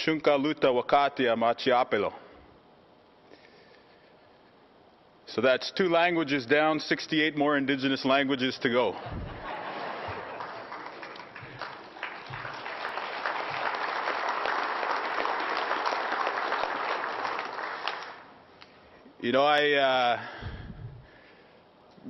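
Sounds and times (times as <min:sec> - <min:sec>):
audience applauding: 0:09.3 - 0:18.3.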